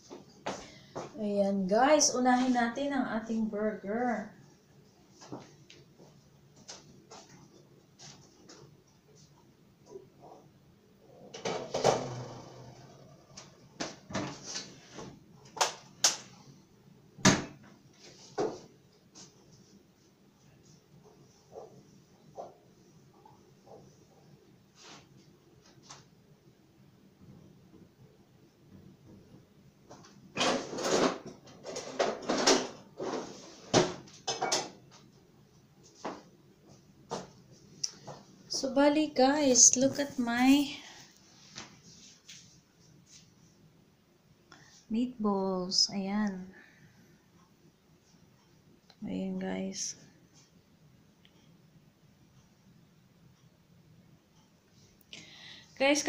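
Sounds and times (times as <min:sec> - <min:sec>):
rattling clatter of things handled: 0:30.0 - 0:34.8.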